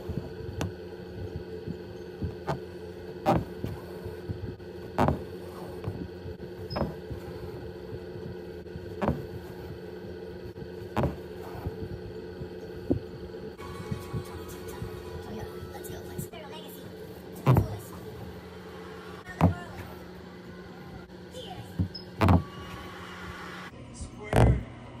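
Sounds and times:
low hum: 0.0 - 25.0
needle tapping fabric: 1.4 - 9.8, 10.8 - 13.2, 17.4 - 17.8, 19.4 - 19.8, 21.8 - 22.5.

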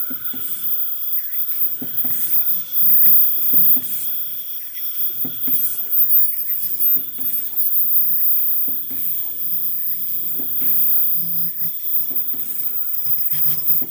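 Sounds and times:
faint machine whine: 0.0 - 13.9
machine hiss bursts: 0.0 - 13.9
machine knocks: 5.0 - 13.9.

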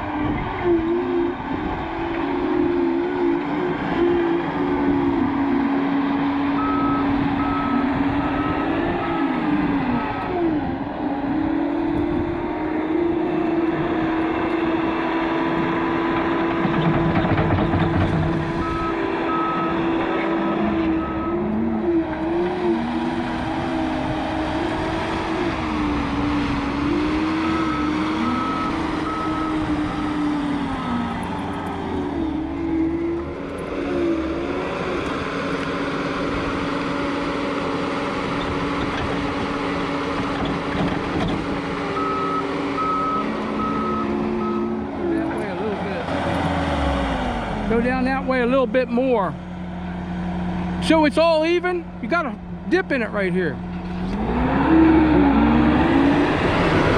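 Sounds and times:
diesel engine running: 0.0 - 56.9
backup alarm beeping: 42.0 - 44.8.

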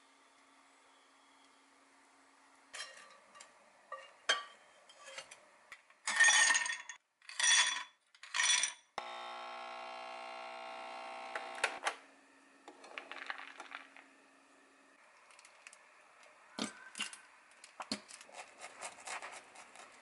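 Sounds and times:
capsule machine pump humming: 9.0 - 11.8.

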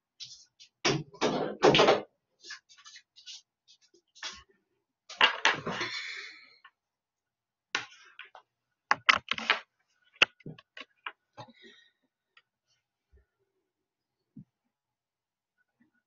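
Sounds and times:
objects clattering on a desk: 5.1 - 5.9, 7.8 - 11.6.

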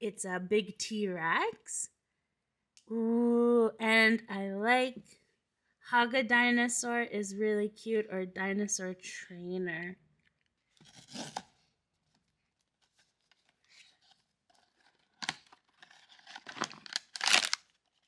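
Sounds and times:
packaging tearing and crinkling: 10.7 - 11.6, 12.6 - 18.0.

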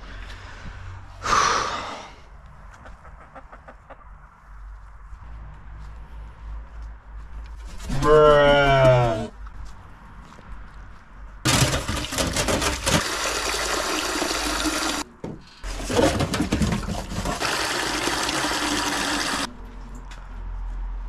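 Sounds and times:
tap water running into metal bowl: 12.7 - 15.0, 15.7 - 19.5.

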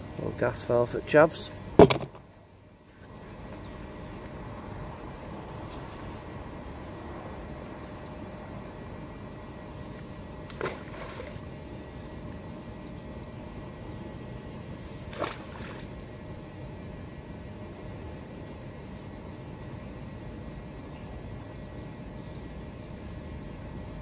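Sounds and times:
steady background noise: 0.0 - 24.0
magnet splashing into water: 15.1 - 16.1.

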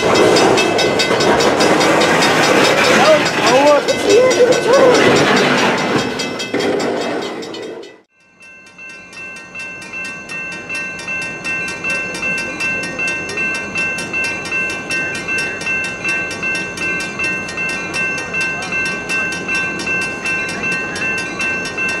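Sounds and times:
freight cars rolling past: 0.0 - 8.1
railroad crossing bell ringing: 0.0 - 22.0
train rumble: 0.0 - 22.0.

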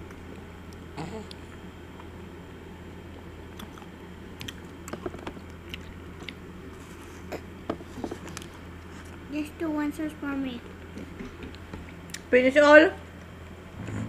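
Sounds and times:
steady low hum: 0.0 - 14.0
chewing crunchy ice cream bar: 3.5 - 6.5.

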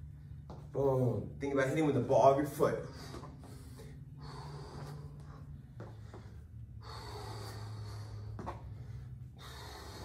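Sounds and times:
low room hum: 0.0 - 10.0
man breathing hard: 2.8 - 10.0.

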